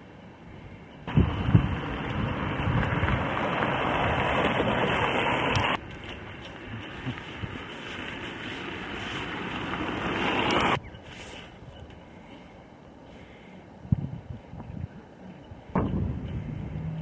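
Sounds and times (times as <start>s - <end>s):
wind buffeting microphone: 0.6s - 7.9s, 13.8s - 17.0s
low wind thumps: 1.1s - 7.7s, 13.8s - 15.0s, 15.7s - 17.0s.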